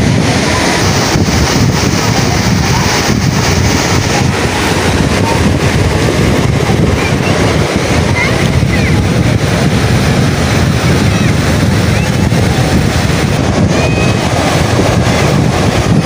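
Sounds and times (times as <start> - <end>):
surf breaking on beach: 0.0 - 16.0
wind buffeting microphone: 0.0 - 16.0.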